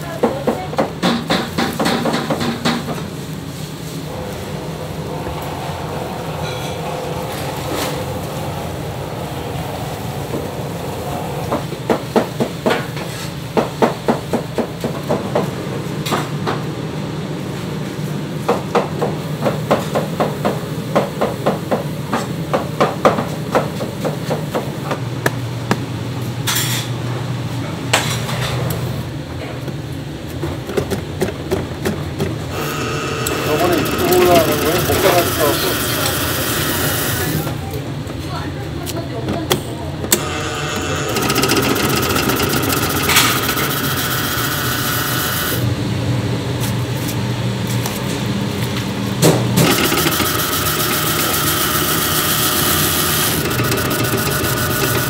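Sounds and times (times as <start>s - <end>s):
kitchen machine hum: 0.0s - 55.0s
potato turning on spiral slicer: 32.5s - 37.5s, 40.2s - 45.6s, 49.6s - 55.0s.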